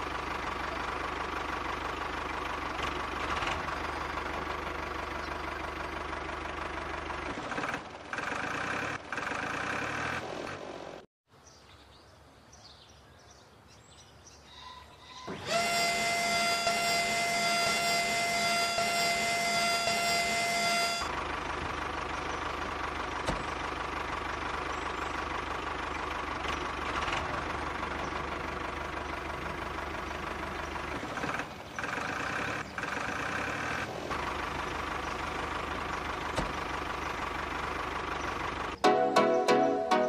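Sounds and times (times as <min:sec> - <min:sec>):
small electric motor whining: 0:15.0 - 0:21.1.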